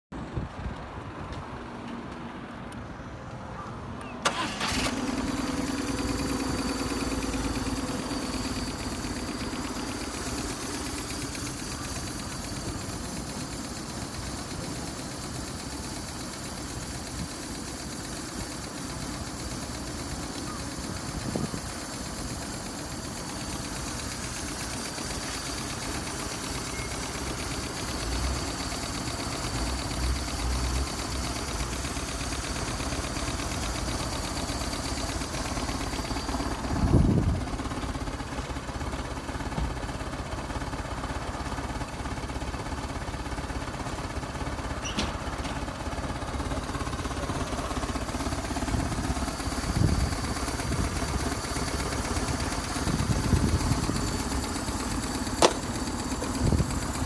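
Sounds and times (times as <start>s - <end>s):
motorcycle starter cranking: 4.2s - 38.5s, 44.0s - 57.0s
motorcycle engine idling: 4.2s - 57.0s.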